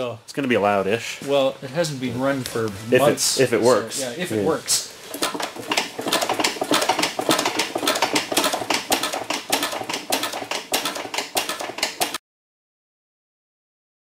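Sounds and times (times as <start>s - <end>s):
engine mechanism clicking and knocking: 5.1s - 12.2s.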